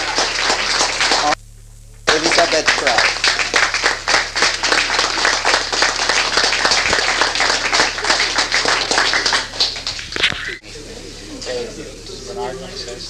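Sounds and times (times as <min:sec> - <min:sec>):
audience applauding: 0:00.0 - 0:01.4, 0:02.1 - 0:10.6
steady low hum: 0:00.0 - 0:13.0.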